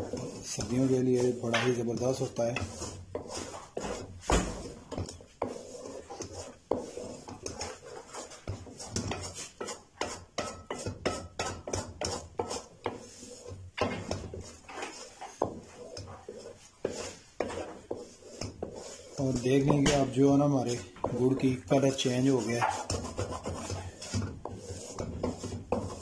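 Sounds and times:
wooden spoon scraping metal pan: 0:00.0 - 0:26.0.

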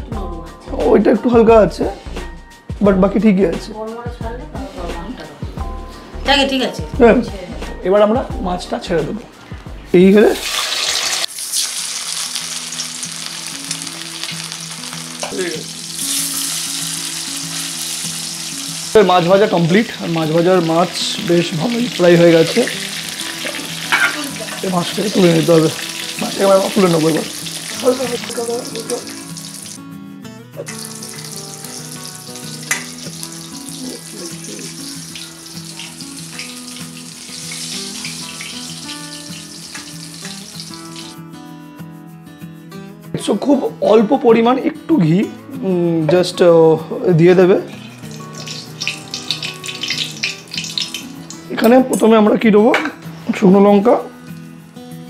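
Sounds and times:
background music: 0:00.0 - 0:55.0
fish sizzling in oil: 0:09.5 - 0:29.9, 0:30.6 - 0:41.2, 0:47.5 - 0:51.7
metal spatula turning food: 0:22.7 - 0:26.0
metal spatula clink: 0:23.5 - 0:24.3.

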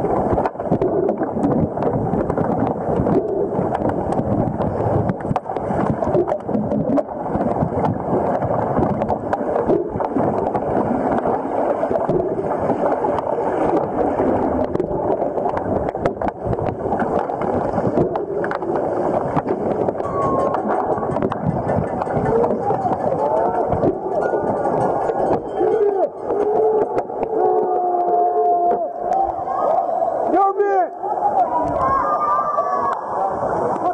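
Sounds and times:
underwater water churning: 0:00.0 - 0:30.4
sharp clicks and knocks: 0:14.5 - 0:28.2.

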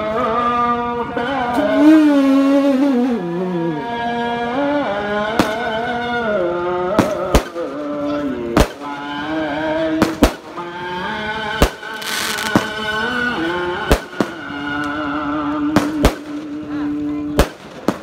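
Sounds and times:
fireworks bangs: 0:05.2 - 0:18.0
fireworks hissing rush: 0:11.6 - 0:14.7.

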